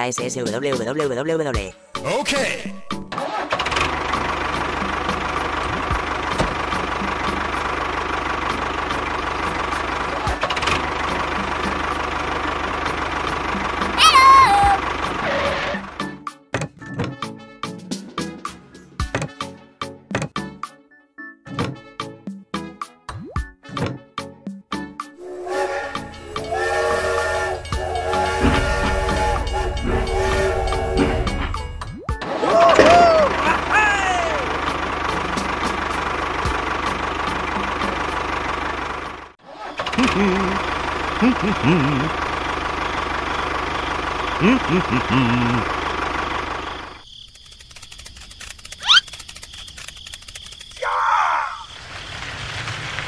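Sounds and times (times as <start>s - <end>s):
steam train whistle: 25.2s - 31.8s
low rumble: 25.2s - 32.1s
toy tractor engine knocking: 45.2s - 50.8s.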